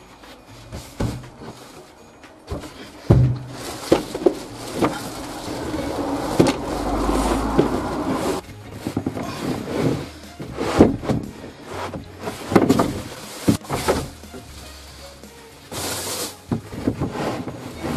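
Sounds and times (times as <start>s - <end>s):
boards scraping and shuffling: 0.1s - 17.9s
wooden boards knocking: 11.9s - 14.2s.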